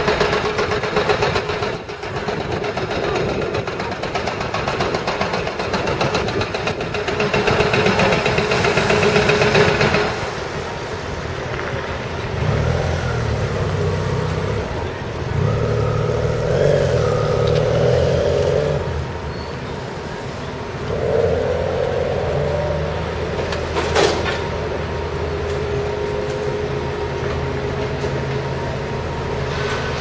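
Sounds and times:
street traffic engines: 0:00.0 - 0:30.0.

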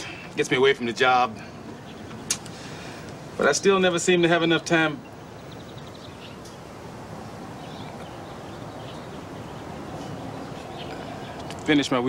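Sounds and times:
outdoor background hiss: 0:00.0 - 0:12.0
bird chirps: 0:01.4 - 0:02.8, 0:03.6 - 0:06.7, 0:07.4 - 0:11.9.

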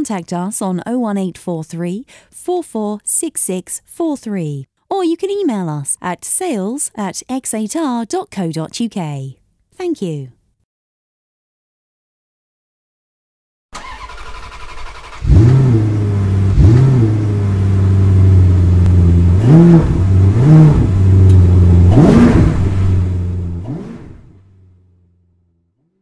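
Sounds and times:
car engine starting and revving: 0:13.8 - 0:26.0.

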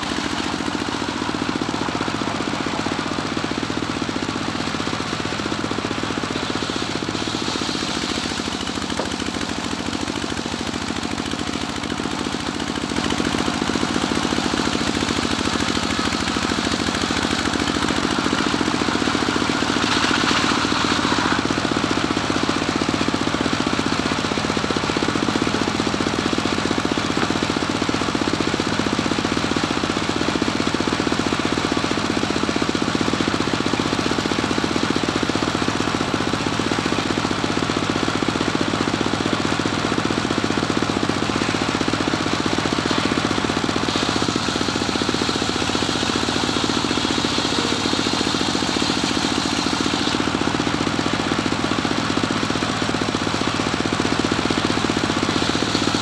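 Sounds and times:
sawmill engine knocking: 0:00.0 - 0:56.0
saw blade cutting wood: 0:06.0 - 0:11.3, 0:13.3 - 0:22.0, 0:42.2 - 0:50.7, 0:55.2 - 0:56.0.

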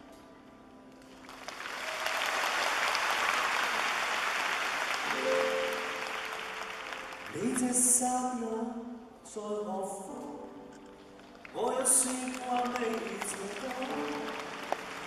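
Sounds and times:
audience applauding: 0:01.0 - 0:08.0, 0:11.1 - 0:15.0
grand piano notes: 0:05.0 - 0:15.0.

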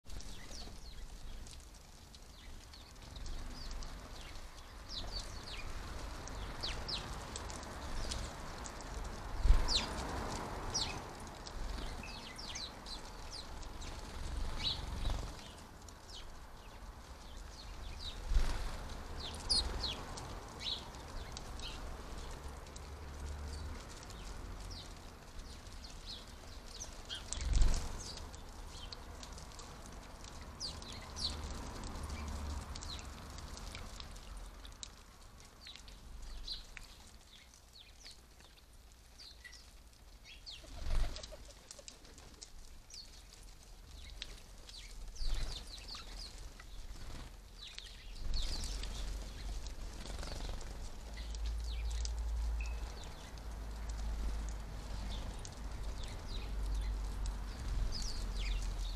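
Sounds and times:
birds splashing in water: 0:00.2 - 0:38.5
wing flutters: 0:40.5 - 0:43.2, 0:44.0 - 0:58.8.

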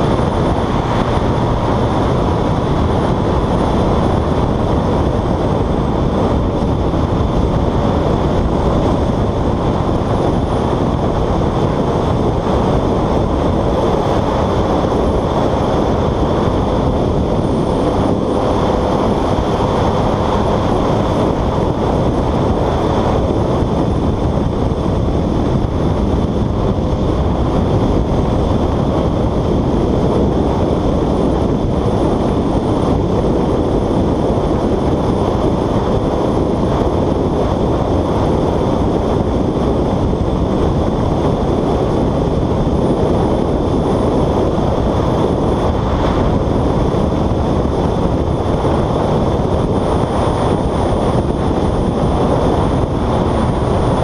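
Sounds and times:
motorcycle engine and road noise: 0:00.0 - 0:54.0
wind rush on microphone: 0:00.0 - 0:54.0.

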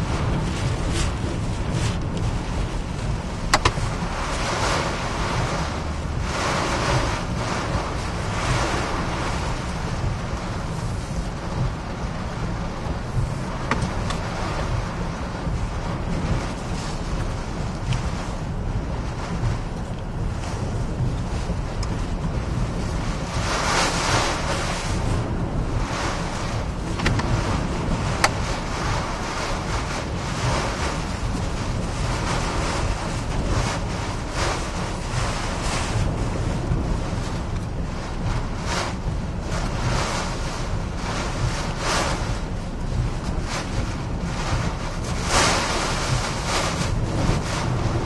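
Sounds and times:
wind and rain rushing against car: 0:00.0 - 0:48.0.

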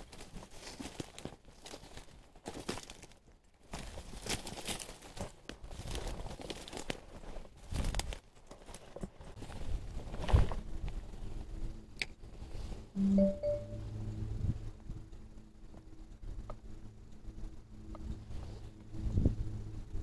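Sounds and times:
dry reeds rustling and crackling: 0:00.0 - 0:12.9.

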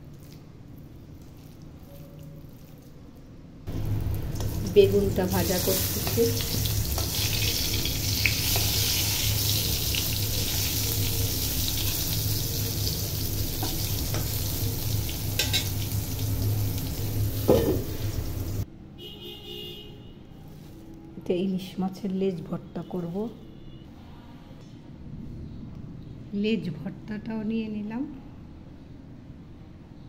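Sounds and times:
low hum: 0:03.7 - 0:08.4
eggplant slices sizzling in oil: 0:03.7 - 0:18.6.

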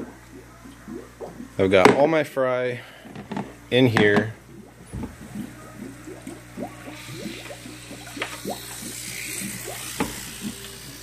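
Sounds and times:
water pouring and gurgling in jar: 0:03.4 - 0:11.0.

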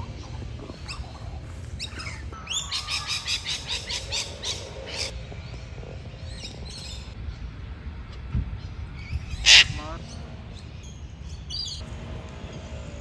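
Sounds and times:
cockatoos squawking: 0:00.0 - 0:05.2, 0:09.3 - 0:10.2.

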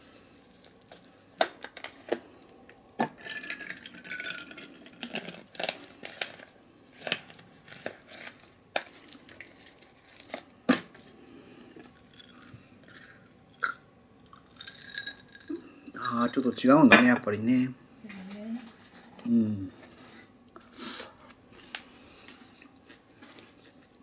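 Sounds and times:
plastic bottle crinkling: 0:00.4 - 0:11.0.

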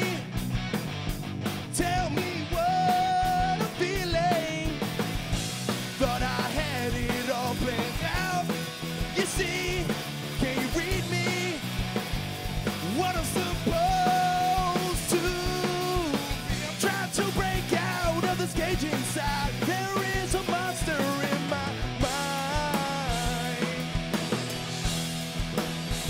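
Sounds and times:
man singing lead vocal: 0:00.0 - 0:00.4, 0:01.6 - 0:04.9, 0:05.9 - 0:11.8, 0:12.8 - 0:24.1
bass guitar: 0:00.0 - 0:26.0
drums: 0:00.0 - 0:26.0
electric guitars: 0:00.0 - 0:26.0.

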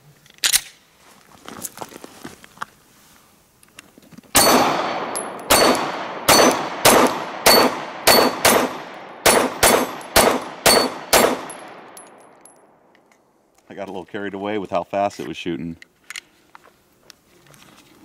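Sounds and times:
pistol shots echoing: 0:04.4 - 0:12.6.

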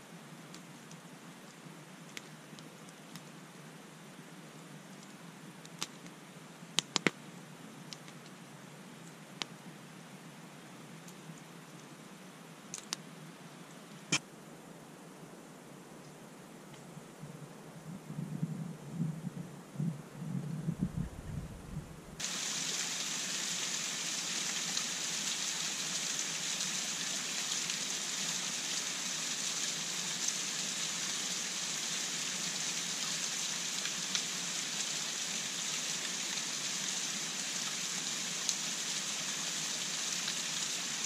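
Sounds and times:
water trickling onto stones: 0:22.2 - 0:41.0.

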